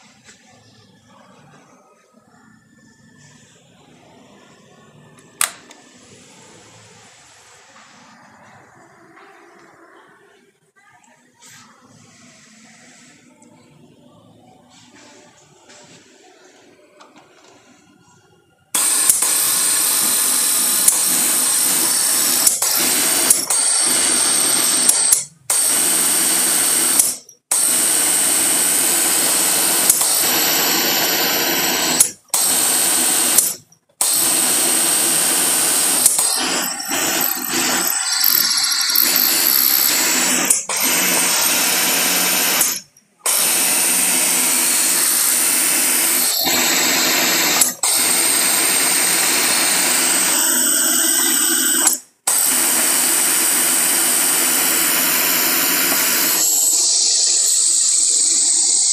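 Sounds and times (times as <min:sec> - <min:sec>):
industrial sewing machine running: 0:18.8 - 0:58.9.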